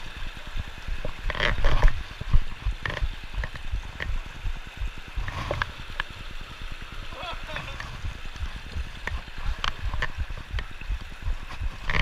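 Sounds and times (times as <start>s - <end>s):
creek running over rocks: 0.0s - 12.0s
wind buffeting microphone: 7.4s - 12.0s.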